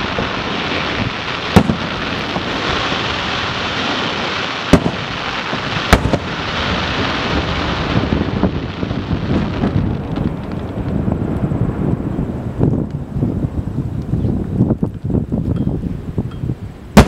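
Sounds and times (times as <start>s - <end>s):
firework shells bursting: 0.0s - 6.8s.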